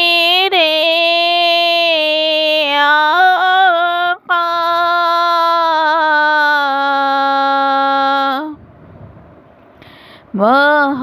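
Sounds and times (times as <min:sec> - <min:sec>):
solo voice singing unaccompanied: 0:00.0 - 0:08.6, 0:10.3 - 0:11.0
person breathing: 0:09.8 - 0:10.4.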